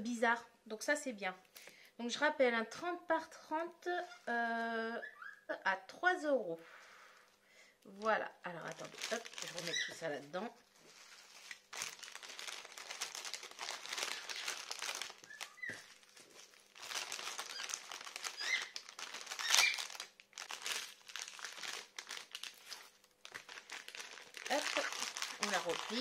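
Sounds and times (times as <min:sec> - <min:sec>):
plastic bags crinkling: 0:07.9 - 0:26.0.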